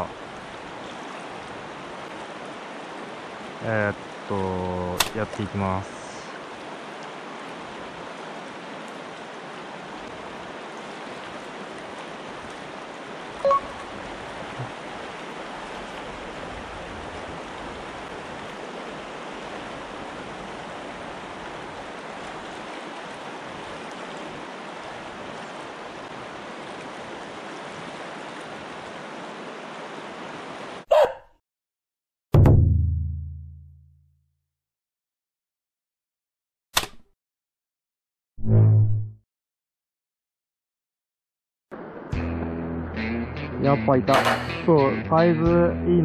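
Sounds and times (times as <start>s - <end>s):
river rushing: 0.0s - 30.9s, 41.7s - 42.3s.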